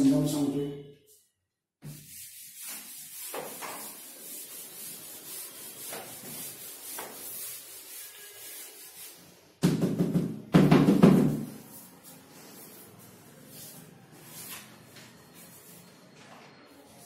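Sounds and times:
duster wiping chalkboard: 1.1 - 9.4, 11.1 - 16.0.

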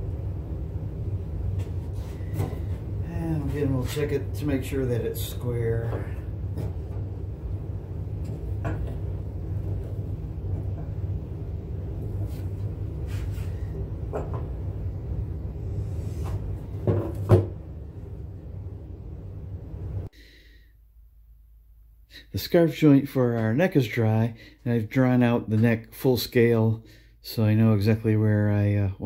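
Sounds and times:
low hum: 0.0 - 20.1.

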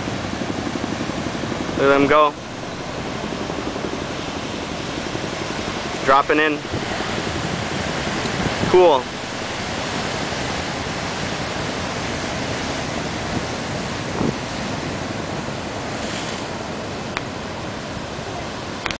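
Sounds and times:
heavy surf breaking: 0.0 - 19.0.

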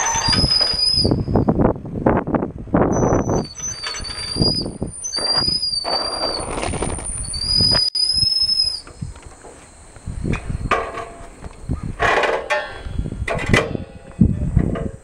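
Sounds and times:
bicycle brakes squealing: 0.0 - 1.5, 2.9 - 9.1
low rumble of wind and rolling: 0.0 - 15.0.

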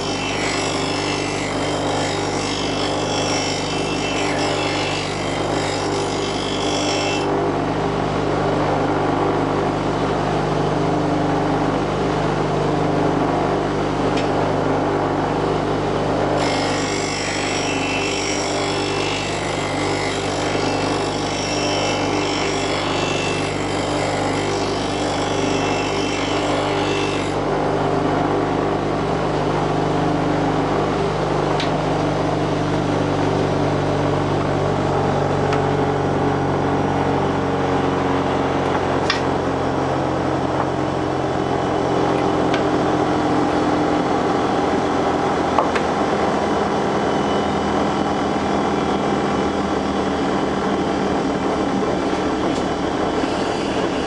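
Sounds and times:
steel blade grinding on wheel: 0.0 - 7.3, 16.4 - 27.4, 53.2 - 54.0
bench grinder motor humming: 0.0 - 7.4, 16.0 - 28.0, 51.8 - 54.0.

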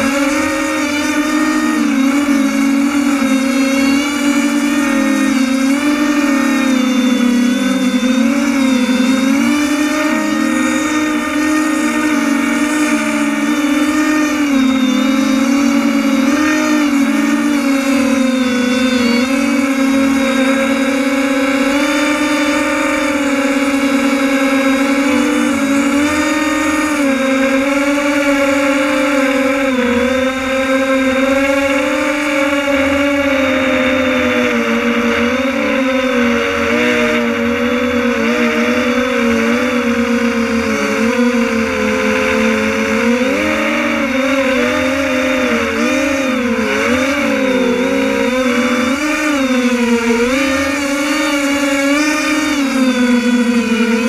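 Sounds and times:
drone motors and propellers whining: 0.0 - 54.0.

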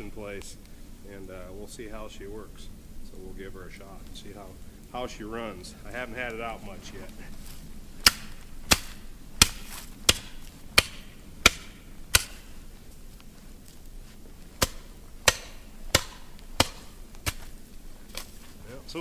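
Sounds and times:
shovel blade chopping into brush: 8.0 - 12.5, 14.6 - 17.5.

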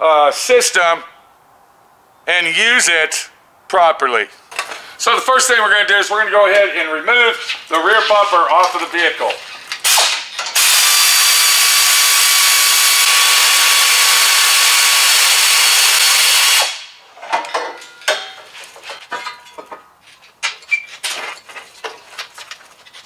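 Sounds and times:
air ratchet running: 10.5 - 16.8
metal clanks and knocks: 17.2 - 23.0.

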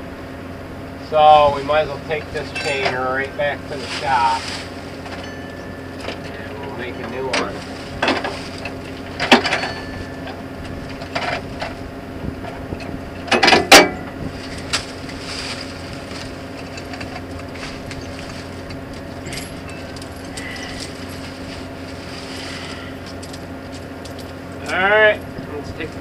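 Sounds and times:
steady engine hum: 0.0 - 26.0
roller chain clanking and rattling: 1.8 - 11.8, 12.4 - 26.0
loud clatter of chain links: 19.2 - 21.7.

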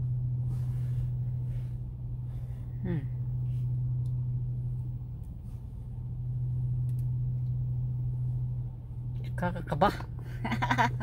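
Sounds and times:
car cabin hum: 0.0 - 11.0.

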